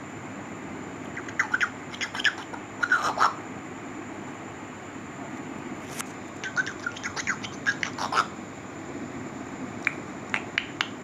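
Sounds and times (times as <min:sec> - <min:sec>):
parrot chirping and whistling: 0:01.2 - 0:03.4, 0:06.4 - 0:08.3.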